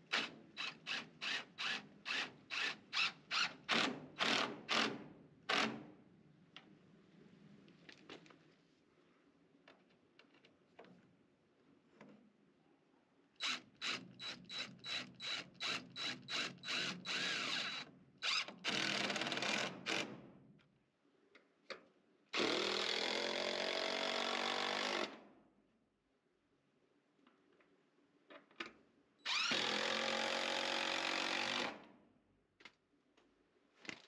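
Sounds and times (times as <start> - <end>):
cordless drill driving screws: 13.4 - 20.0, 29.3 - 31.8.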